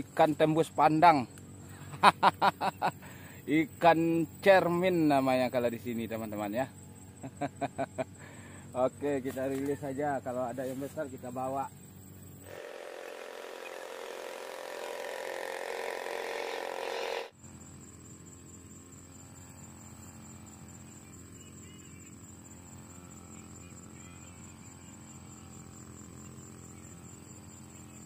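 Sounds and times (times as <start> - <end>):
insects whining: 0.0 - 28.0
boat engine drone: 11.6 - 17.4.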